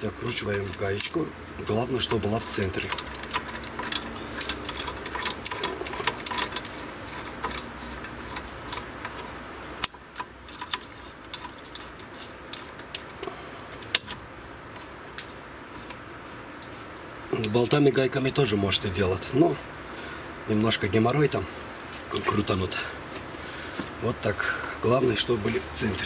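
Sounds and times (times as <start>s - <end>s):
nut spinning on threaded rod: 0.2s - 13.2s.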